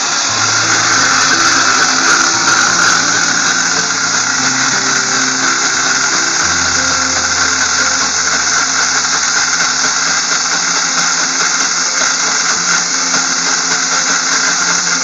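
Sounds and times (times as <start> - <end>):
slow music: 0.0 - 12.0.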